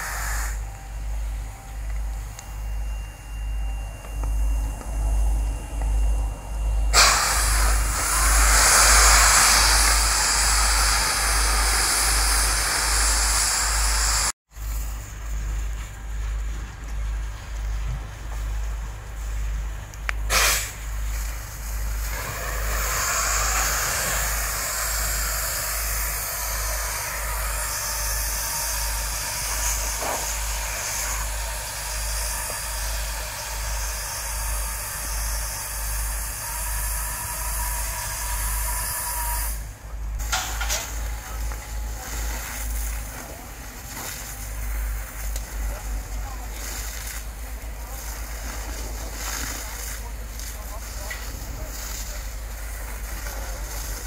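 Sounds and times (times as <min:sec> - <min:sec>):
water jet hissing: 0:00.0 - 0:00.9, 0:06.9 - 0:14.9, 0:20.3 - 0:54.0
low rumble: 0:00.6 - 0:20.2.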